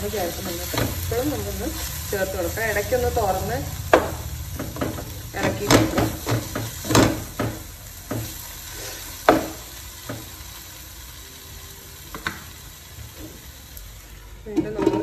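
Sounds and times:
low steady sizzle: 0.0s - 15.0s.

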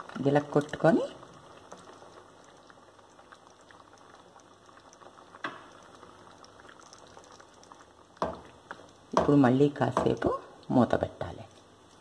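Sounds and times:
curry bubbling in a pan: 0.0s - 12.0s.

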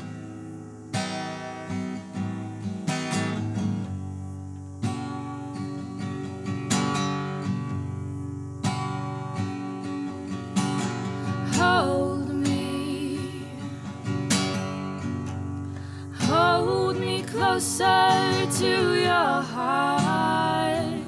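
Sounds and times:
acoustic guitar strumming: 0.0s - 21.0s
person singing: 11.5s - 13.8s, 16.0s - 21.0s.

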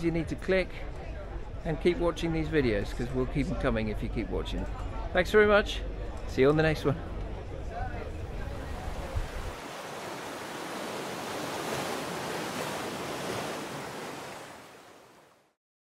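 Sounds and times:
wind buffeting microphone: 8.2s - 14.0s.

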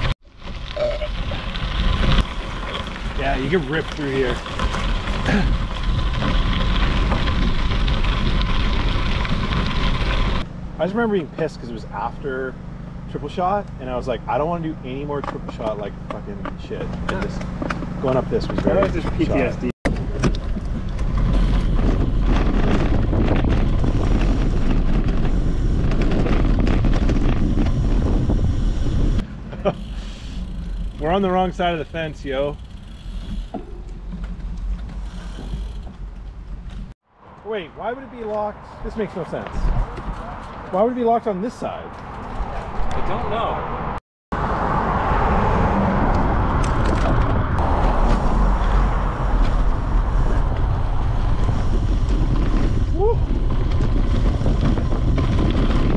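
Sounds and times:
tyre rumble on dirt: 0.0s - 10.5s, 16.5s - 29.2s, 47.1s - 55.9s
bicycle road noise: 0.0s - 55.9s
wind buffeting microphone: 19.0s - 29.3s, 42.1s - 55.9s
bike rattling clicks: 29.6s - 36.9s.

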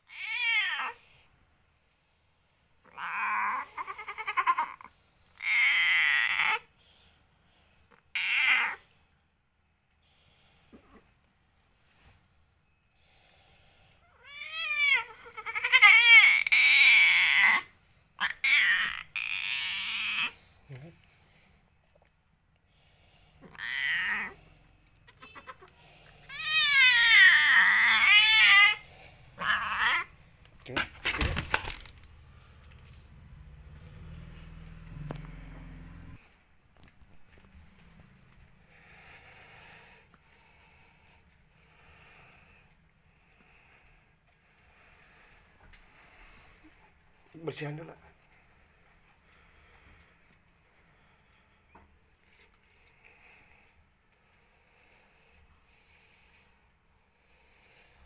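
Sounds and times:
cat meowing loudly: 0.1s - 1.0s, 2.9s - 4.7s, 5.4s - 6.7s, 8.1s - 8.8s, 14.1s - 20.4s, 23.4s - 24.4s, 26.3s - 28.8s, 29.4s - 30.1s.

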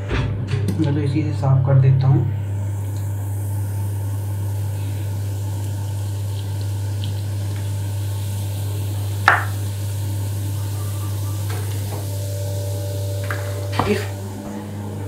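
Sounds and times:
low hum: 0.0s - 15.0s
water trickling into basin: 4.8s - 14.2s.

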